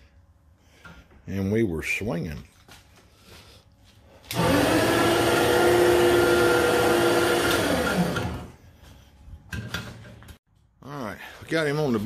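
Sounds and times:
electric winch motor whining: 4.3s - 8.6s.

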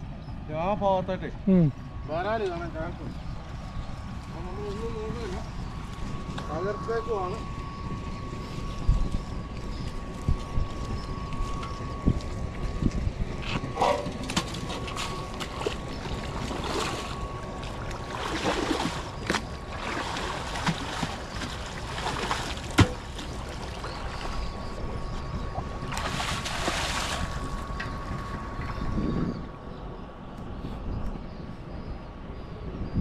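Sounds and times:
faint steady whine: 0.0s - 33.0s
water splashing and sloshing: 13.6s - 28.9s.

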